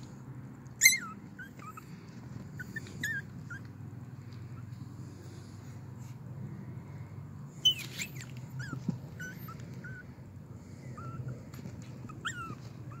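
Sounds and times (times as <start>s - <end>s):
low steady hum: 0.0s - 13.0s
puppy whimpering: 0.7s - 3.8s, 7.6s - 13.0s
puppy yip: 0.7s - 3.8s, 7.6s - 10.1s, 10.8s - 13.0s.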